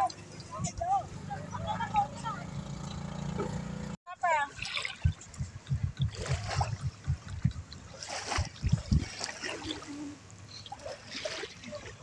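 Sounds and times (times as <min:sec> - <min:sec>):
paddles splashing in water: 0:04.3 - 0:12.0
low thumps: 0:05.0 - 0:09.0.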